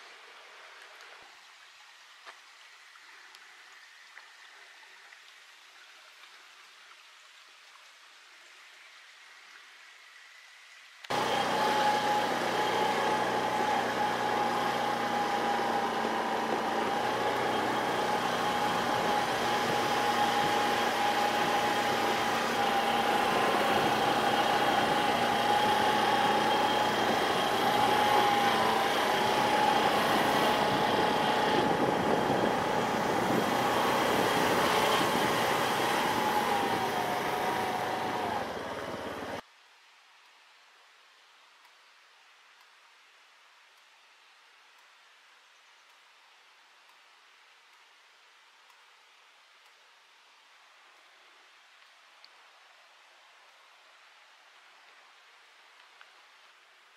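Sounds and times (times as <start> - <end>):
motor engine humming: 11.1 - 39.4.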